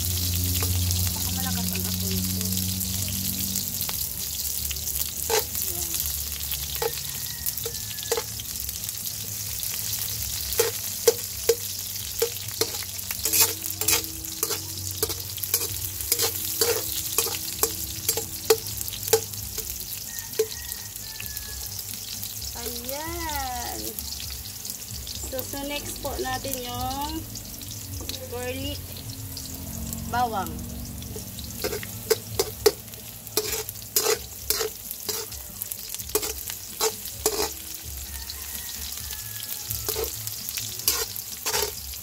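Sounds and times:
metal spatula scraping and knocking wok: 0.0 - 2.6, 4.4 - 20.7, 31.0 - 42.0
onion sizzling in hot oil: 0.0 - 42.0.

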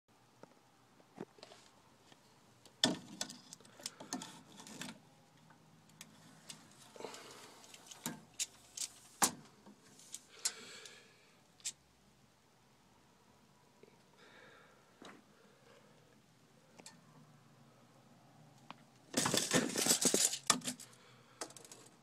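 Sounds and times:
tape measure clicking and rattling: 7.6 - 9.1, 19.2 - 20.9.

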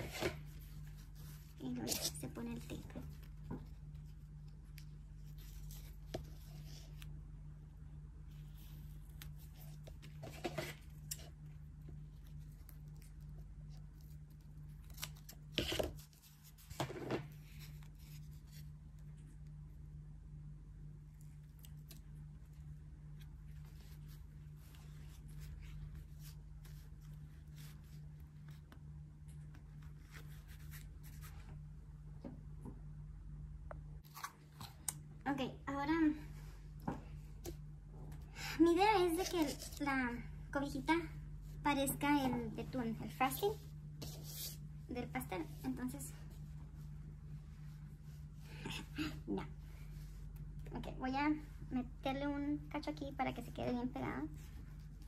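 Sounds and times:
ribbon rustling: 0.0 - 7.3, 21.2 - 31.7
steady low hum: 0.0 - 55.0.

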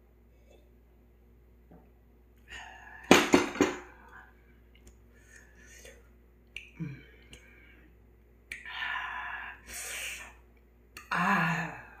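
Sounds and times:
person sighing: 6.7 - 7.4, 11.0 - 12.0.

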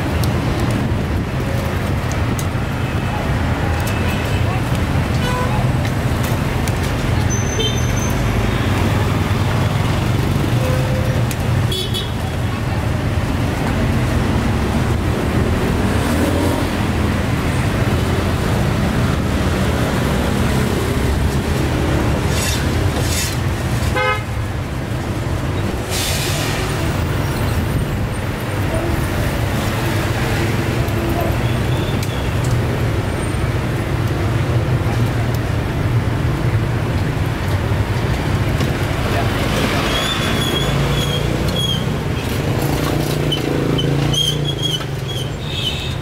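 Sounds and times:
street traffic rumble: 0.0 - 46.0
vehicle horn toot: 24.0 - 24.2.

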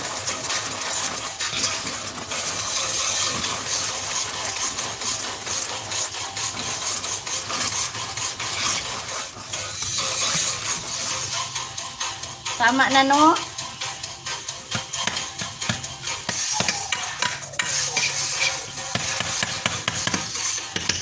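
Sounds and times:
liquid bubbling: 0.0 - 12.3
metal spoon scraping wok: 0.0 - 21.0.

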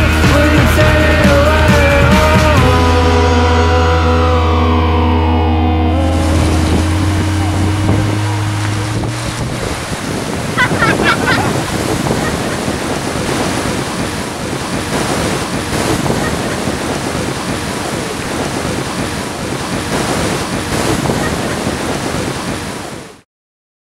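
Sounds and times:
wind buffeting microphone: 4.9 - 23.1
surf washing over sand: 5.9 - 23.2.

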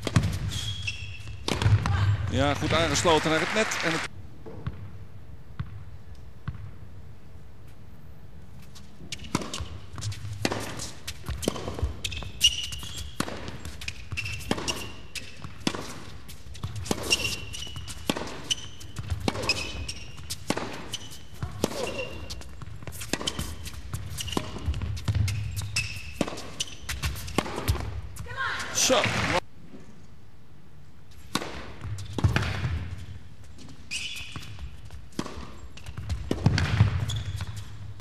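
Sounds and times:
racket striking tennis ball: 0.0 - 0.7, 1.3 - 1.9, 9.1 - 28.2, 31.2 - 32.9, 34.5 - 38.0
shoes squeaking on court: 0.0 - 1.8, 8.6 - 29.0, 31.1 - 38.0
tennis ball bouncing on court: 0.0 - 2.9, 9.1 - 28.4, 31.2 - 33.2, 34.3 - 38.0.

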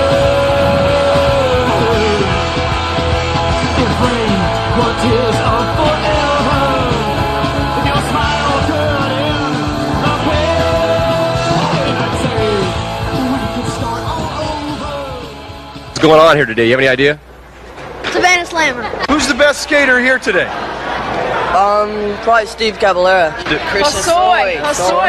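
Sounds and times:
rock music with singing: 0.0 - 16.2.

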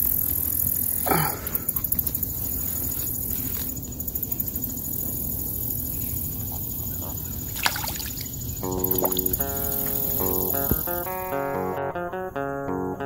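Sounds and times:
sharp splash: 7.6 - 8.2
plucked guitar music: 8.6 - 13.0.

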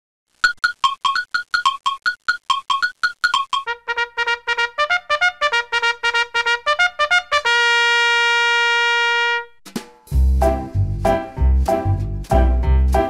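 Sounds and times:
intro music: 9.7 - 13.0.

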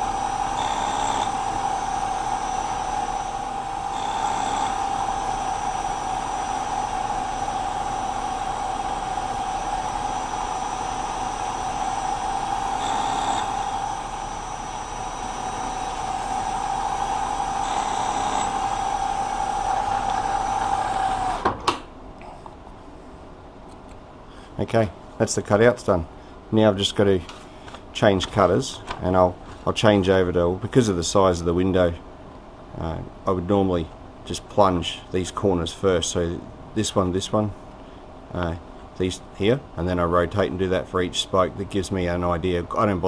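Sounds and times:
harsh metal cutting noise: 0.0 - 21.6
milling machine spindle whine: 0.0 - 21.6.

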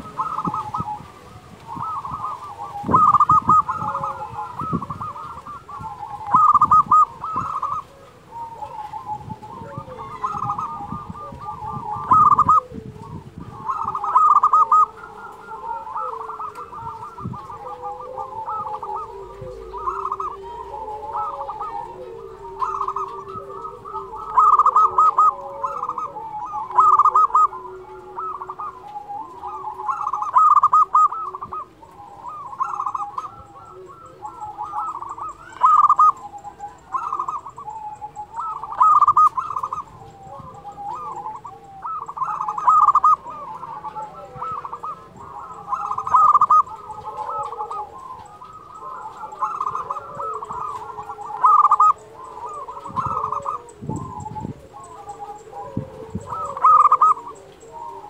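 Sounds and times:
dove trilled cooing: 0.0 - 58.0
low dove coos: 0.0 - 58.0.

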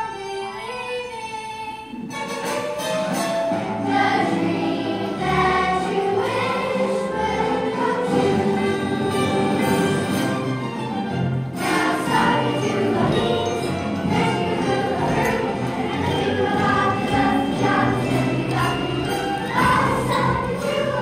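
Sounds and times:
musical accompaniment: 0.0 - 21.0
children singing in chorus: 3.8 - 9.2, 11.6 - 21.0.

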